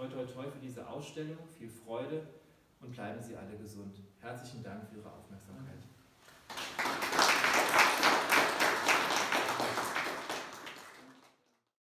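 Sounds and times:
audience applauding: 6.4s - 11.7s.

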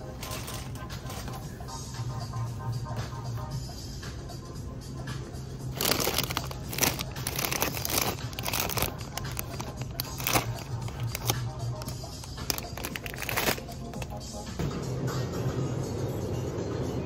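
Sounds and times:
background music: 0.0s - 17.0s
plastic snack bag crinkling: 0.1s - 1.4s, 5.7s - 14.2s.

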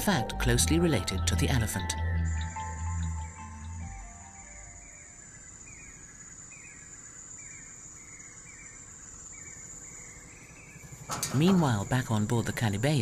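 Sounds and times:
high-pitched insect drone: 0.8s - 11.0s.

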